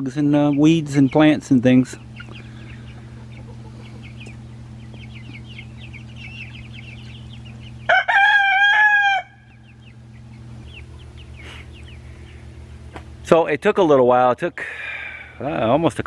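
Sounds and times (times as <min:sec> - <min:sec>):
chicks peeping: 0:00.0 - 0:16.0
low hum: 0:00.0 - 0:16.0
rooster crowing: 0:07.8 - 0:09.6.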